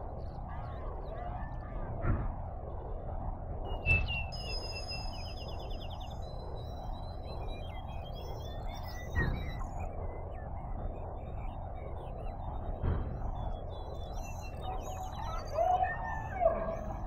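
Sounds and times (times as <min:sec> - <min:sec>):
high electronic whistles and chirps: 0:03.7 - 0:12.6, 0:13.7 - 0:17.0.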